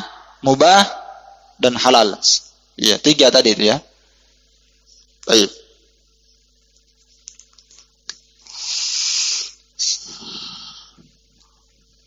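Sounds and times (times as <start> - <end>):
person breathing: 8.4 - 11.1.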